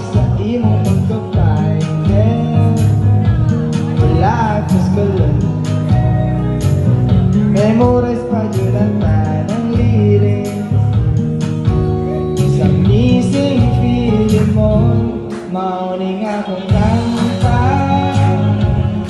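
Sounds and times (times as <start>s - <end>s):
man singing into microphone: 0.0s - 6.5s, 7.1s - 19.0s
guitar: 0.0s - 19.0s
drum beat: 16.7s - 19.0s.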